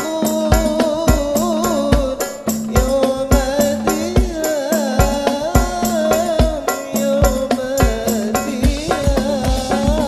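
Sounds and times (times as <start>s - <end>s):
frame drums slapping: 0.0s - 10.0s
man singing wavering melody: 0.0s - 10.0s.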